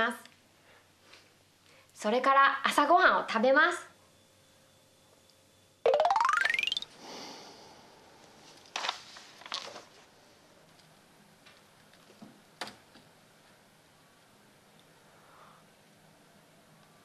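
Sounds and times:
fast rising run of tones: 0:05.9 - 0:06.8.

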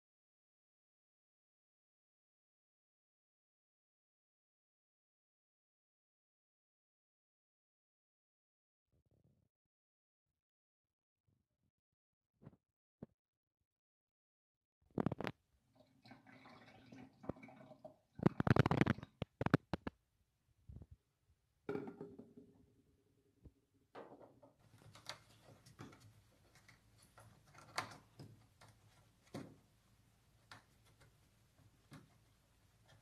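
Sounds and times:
water pouring and gurgling: 0:15.1 - 0:19.9
plastic jug clunks: 0:21.7 - 0:22.6.

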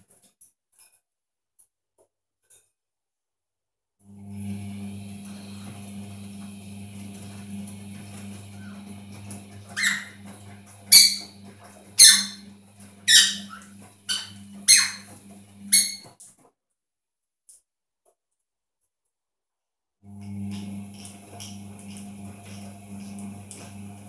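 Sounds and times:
parrot squawking: 0:09.8 - 0:10.2, 0:10.9 - 0:11.4, 0:12.0 - 0:12.4, 0:13.1 - 0:16.1.

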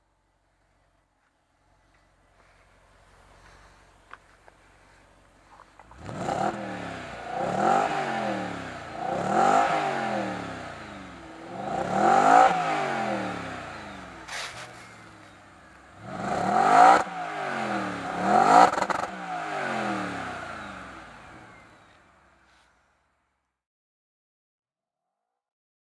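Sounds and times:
exhaust crack: 0:00.1 - 0:22.8
car engine revving: 0:01.9 - 0:22.4.

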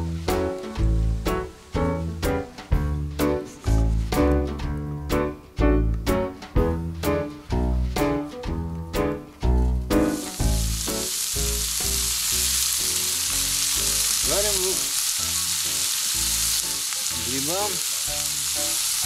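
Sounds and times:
onions sizzling in oil: 0:10.0 - 0:19.0.

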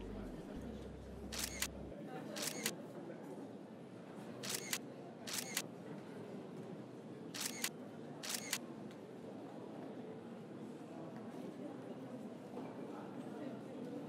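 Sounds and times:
camera shutter double clicks: 0:01.3 - 0:01.8, 0:02.4 - 0:02.7, 0:04.4 - 0:05.6, 0:07.4 - 0:08.6.

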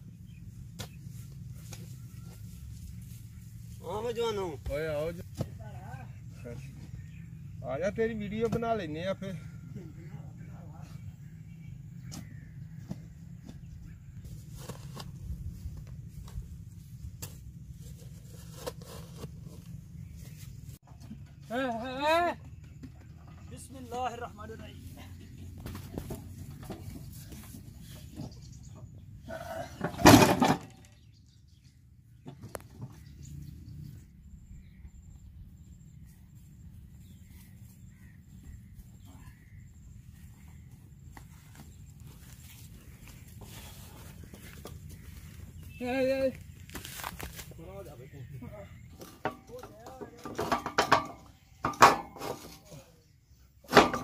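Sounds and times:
faint bird chirps: 0:30.9 - 0:47.0.

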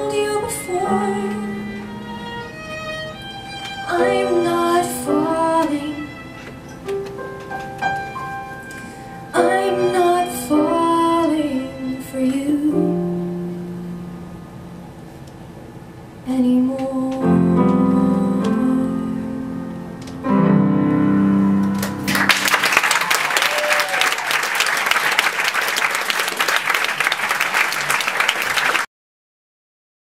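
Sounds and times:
piano chords ringing out: 0:00.0 - 0:15.0, 0:17.0 - 0:22.9
audience applauding: 0:21.8 - 0:28.9.

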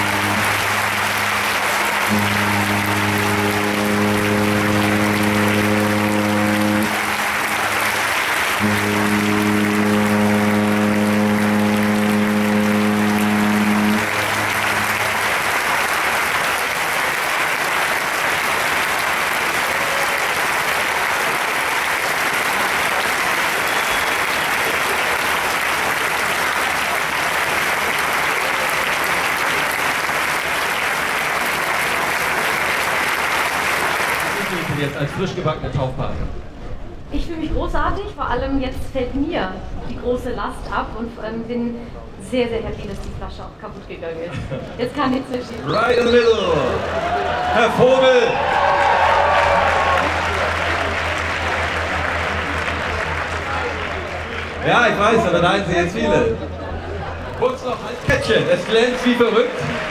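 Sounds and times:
ship's horn blasts: 0:00.0 - 0:34.8, 0:47.8 - 0:57.4
applause: 0:00.0 - 0:35.2, 0:44.9 - 0:59.9.

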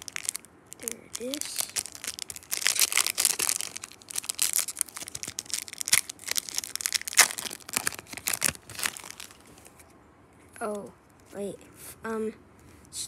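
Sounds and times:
foil wrapper crinkling and tearing: 0:00.0 - 0:09.8.

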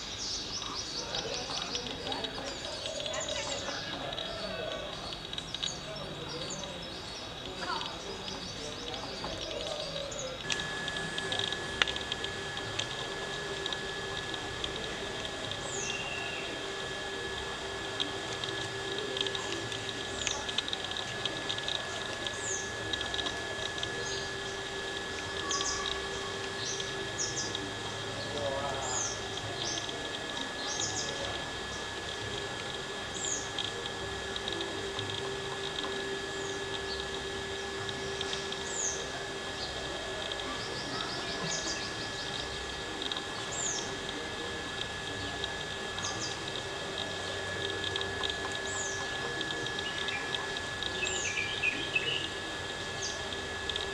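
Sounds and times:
bird trill: 0:00.0 - 0:31.8
high insect hum: 0:00.0 - 0:53.9
small birds chirping: 0:00.0 - 0:53.9.

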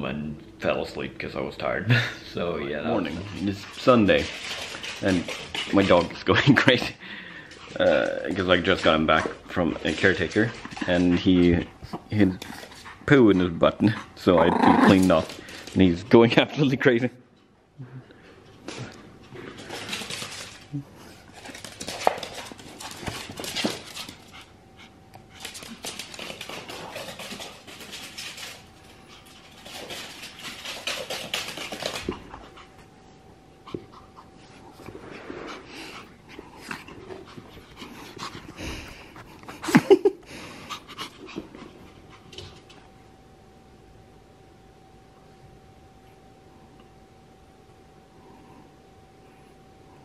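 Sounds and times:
dog panting hard: 0:02.8 - 0:06.1, 0:07.4 - 0:14.4, 0:33.6 - 0:42.6.

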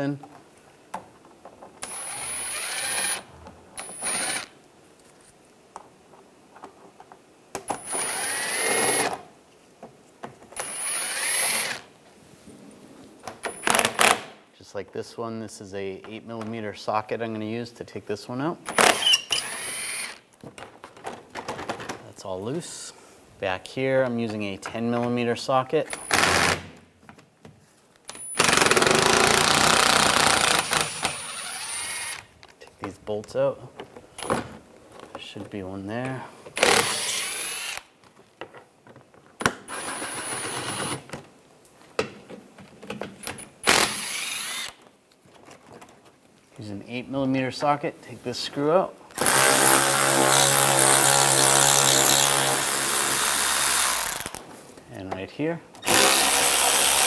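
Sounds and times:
cordless drill whining: 0:01.8 - 0:04.5, 0:07.8 - 0:09.2, 0:10.6 - 0:11.8, 0:18.8 - 0:20.2, 0:28.3 - 0:32.3, 0:36.6 - 0:37.8, 0:43.7 - 0:44.8, 0:55.8 - 0:57.0.

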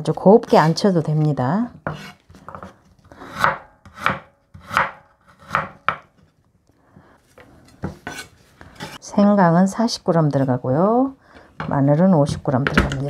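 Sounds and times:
knife slicing ginger: 0:00.2 - 0:06.1.

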